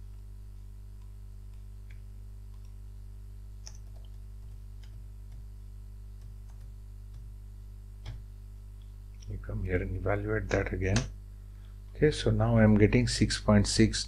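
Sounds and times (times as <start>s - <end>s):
steady low hum: 0.0s - 14.0s
computer keyboard keystrokes: 3.6s - 5.5s, 6.2s - 7.3s.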